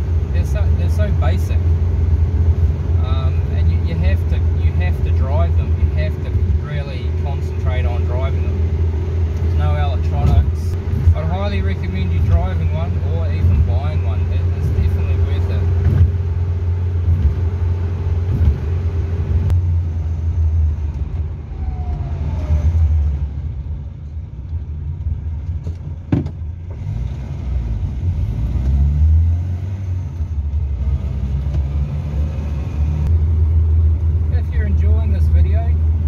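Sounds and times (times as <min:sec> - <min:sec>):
car engine and road noise: 0:00.0 - 0:36.0.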